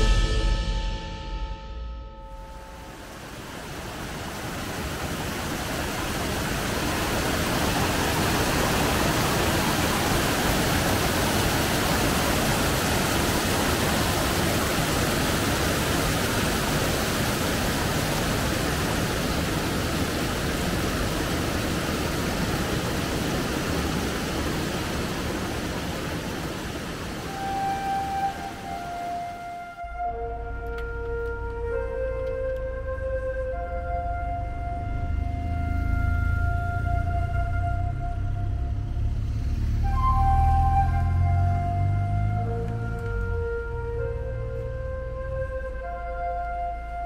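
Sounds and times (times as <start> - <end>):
waterfall roaring: 2.6 - 47.0.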